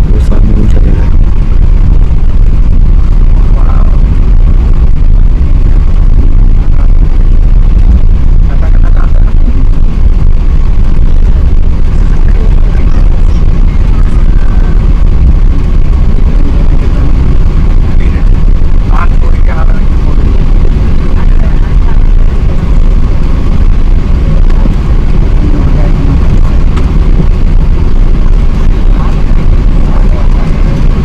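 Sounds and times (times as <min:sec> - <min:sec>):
jet engine rumble in cabin: 0:00.0 - 0:31.0.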